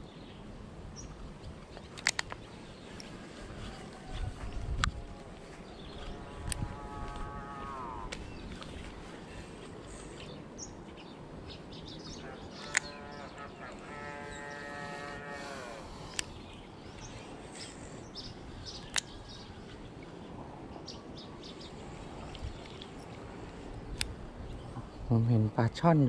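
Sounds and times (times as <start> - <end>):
birds chirping: 0.0 - 26.0
sharp clicks: 1.8 - 2.4, 12.6 - 13.0, 15.9 - 16.4
cow mooing: 6.1 - 8.2, 12.2 - 16.0.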